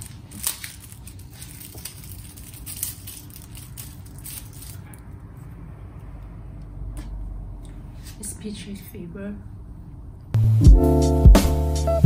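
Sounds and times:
thin plastic crinkling: 0:00.0 - 0:05.2.

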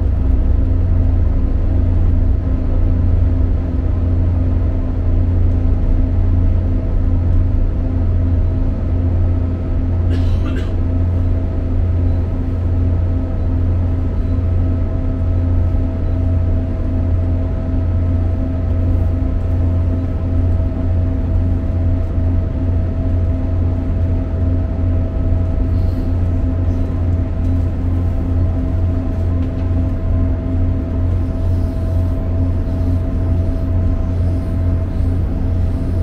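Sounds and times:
train wheels rumbling on track: 0:00.0 - 0:36.0
faint steady whine: 0:11.3 - 0:36.0.

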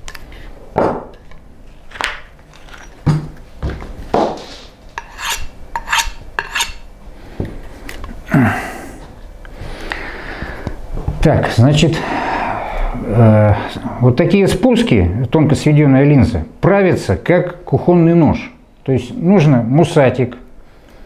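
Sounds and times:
knife blade scraping on block: 0:05.0 - 0:06.8.

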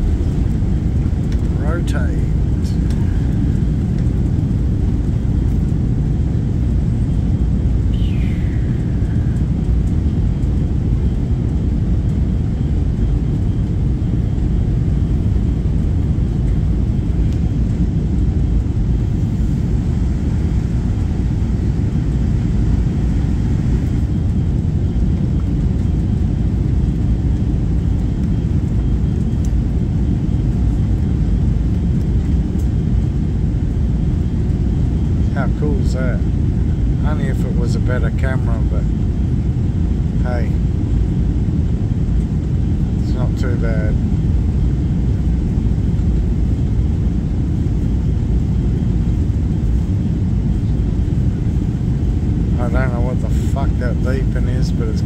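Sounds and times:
jet engines deep rumble: 0:00.0 - 0:55.0.

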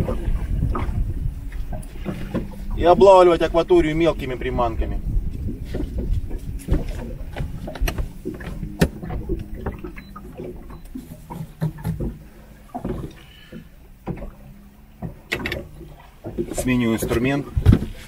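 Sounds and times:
low rumble: 0:00.0 - 0:11.3.

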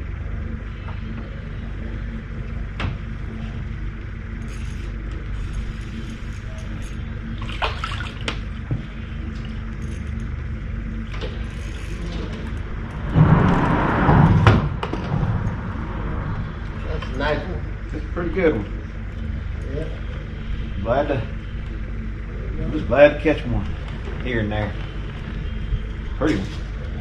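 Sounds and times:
fish splashing out of water: 0:07.4 - 0:08.2
low rumble: 0:08.6 - 0:27.0.

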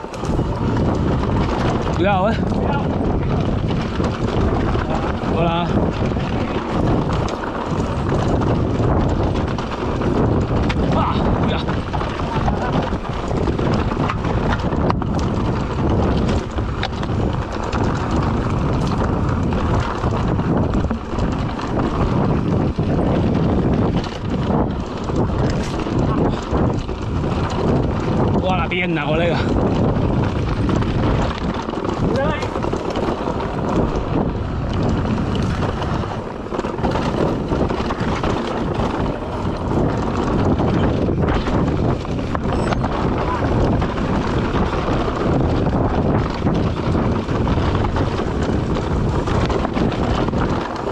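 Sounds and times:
bike jolting knocks and clicks: 0:00.0 - 0:50.9
bike tyres crunching over stones: 0:00.0 - 0:50.9
wind on microphone: 0:00.0 - 0:50.9.

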